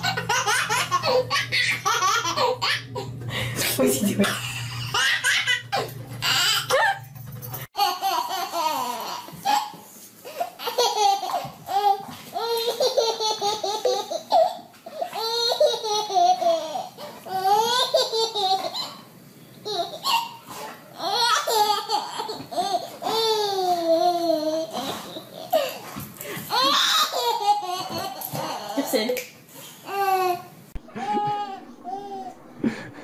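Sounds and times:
baby laughing: 0:00.0 - 0:03.1, 0:04.2 - 0:07.1, 0:07.8 - 0:19.0, 0:26.5 - 0:28.9, 0:29.9 - 0:33.0.

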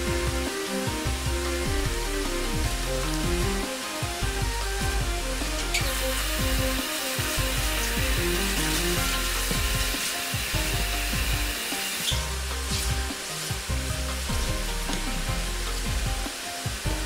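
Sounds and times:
background music: 0:00.0 - 0:17.0.

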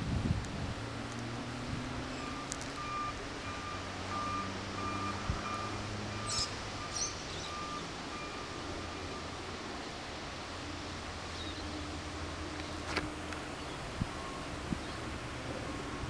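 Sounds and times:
engine drone: 0:00.0 - 0:16.0
reversing alarm beeping: 0:02.2 - 0:09.4.

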